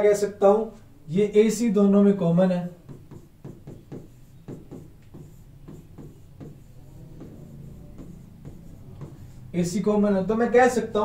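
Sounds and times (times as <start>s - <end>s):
writing strokes on a board: 2.6s - 9.8s.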